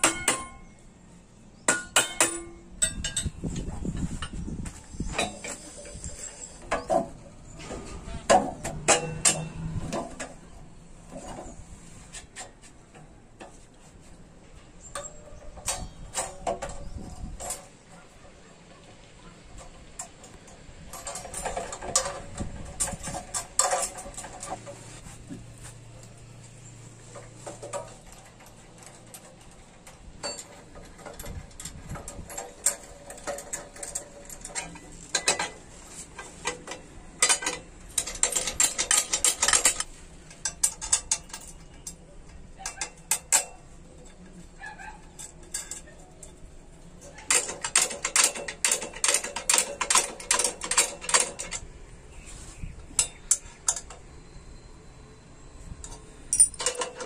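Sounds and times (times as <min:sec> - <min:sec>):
wrench clicking and clinking: 0:56.3 - 0:57.0.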